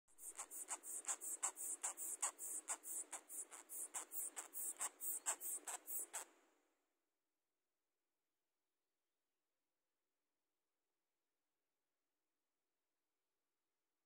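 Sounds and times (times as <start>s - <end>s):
claws scratching on cloth: 0.2s - 6.3s.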